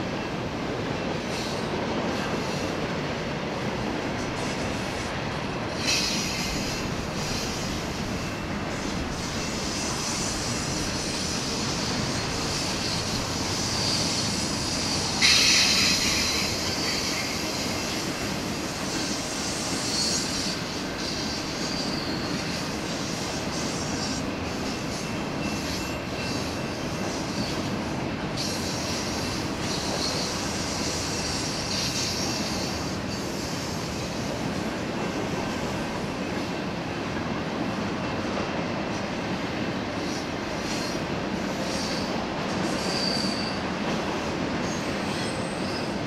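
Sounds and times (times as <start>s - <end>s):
train wheels rumbling on rails: 0.0s - 46.0s
high-pitched wheel squeal: 19.6s - 22.6s, 42.7s - 43.6s.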